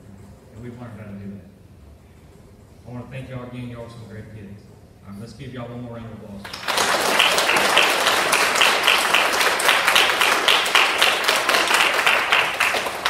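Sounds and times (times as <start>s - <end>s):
audience applauding: 6.4s - 13.0s
close hands clapping: 6.4s - 13.0s.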